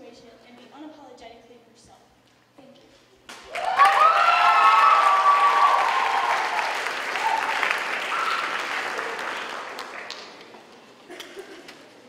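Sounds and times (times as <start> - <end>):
audience applauding: 3.3 - 10.8
people shouting and whooping: 3.5 - 9.2.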